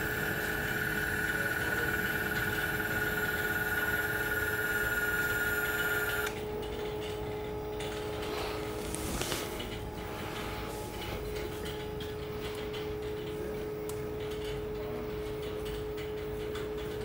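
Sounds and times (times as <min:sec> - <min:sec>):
valve motor whining: 0:00.0 - 0:06.5
steady low hum: 0:00.0 - 0:17.0.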